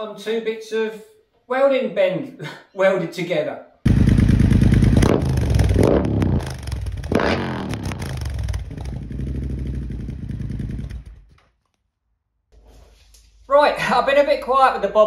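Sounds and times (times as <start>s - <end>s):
motorcycle engine revving and idling: 3.9s - 11.4s.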